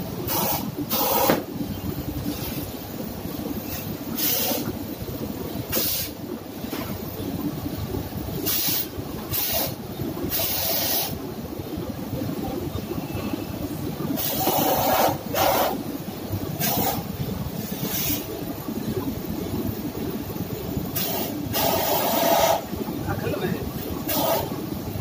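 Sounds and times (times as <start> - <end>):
gas torch flame rumble: 0.0 - 25.0
short bursts of hiss: 3.7 - 4.7, 8.4 - 11.2, 17.8 - 18.3, 21.0 - 22.6.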